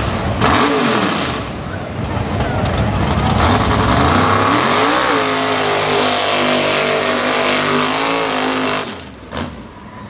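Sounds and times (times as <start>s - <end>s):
truck engine revving hard: 0.0s - 1.7s, 2.8s - 9.7s.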